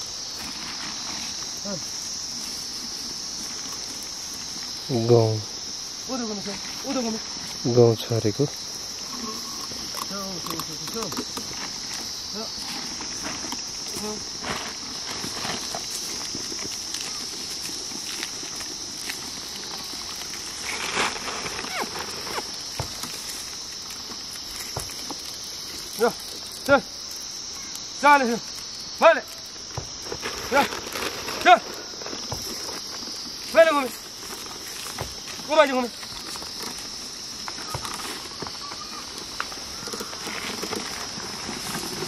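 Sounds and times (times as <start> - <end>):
hooves and feet thudding on soil: 0.0 - 42.0
insects droning: 0.0 - 42.0
steady high-pitched hiss: 0.0 - 42.0
falling whistle-like calls: 37.6 - 40.4.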